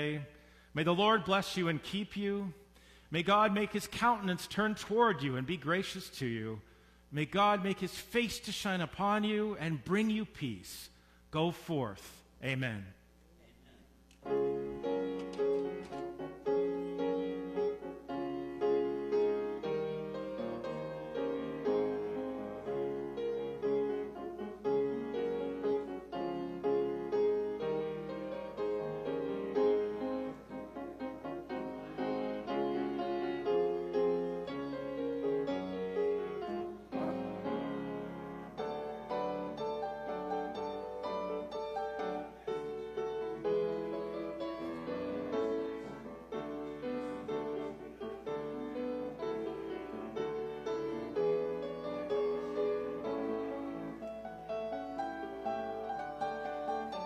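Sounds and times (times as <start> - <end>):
grand piano melody: 0.0 - 2.6, 14.2 - 57.0.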